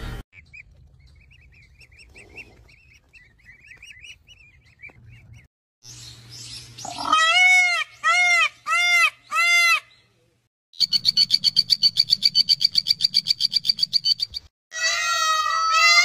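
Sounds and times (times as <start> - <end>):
animal calls rising and falling: 6.8 - 9.8.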